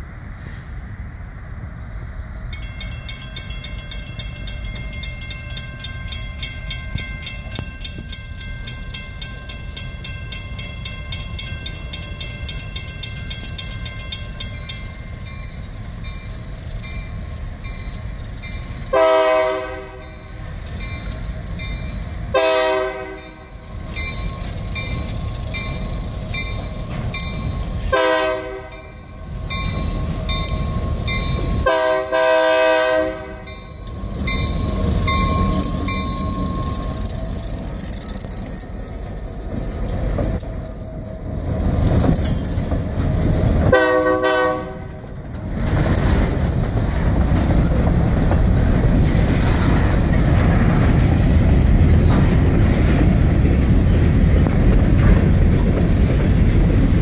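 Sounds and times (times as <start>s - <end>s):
rumble of engine and wheels: 0.0s - 57.0s
crossing signal bell ringing: 2.6s - 19.1s, 19.9s - 32.0s, 32.8s - 37.8s
locomotive horn blasts: 18.9s - 20.2s, 22.3s - 23.5s, 27.9s - 28.9s, 31.6s - 33.6s, 43.7s - 45.0s.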